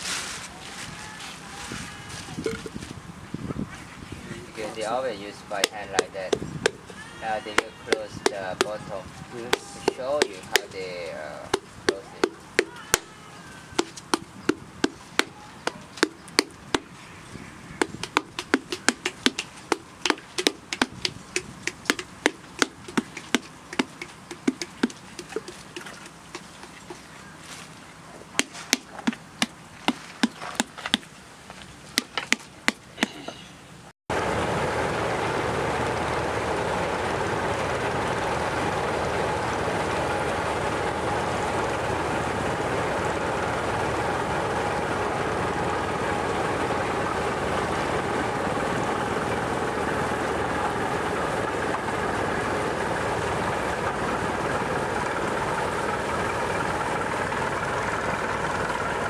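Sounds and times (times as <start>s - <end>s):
boat engine running: 4.4s - 31.1s, 34.1s - 59.0s
wooden paddle beating clay pot: 5.6s - 10.8s, 11.4s - 13.2s, 13.8s - 16.9s, 17.8s - 27.0s, 28.4s - 31.1s, 32.0s - 33.2s.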